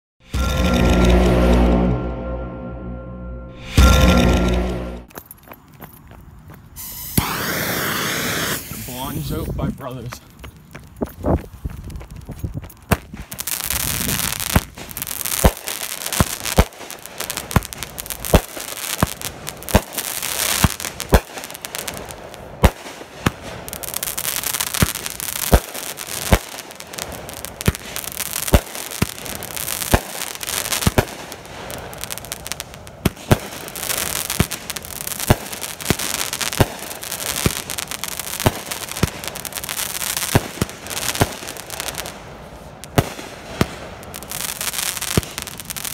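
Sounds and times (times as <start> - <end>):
firework reports: 3.6 - 5.1, 6.8 - 10.3
firework hiss: 6.8 - 9.7, 13.1 - 45.9.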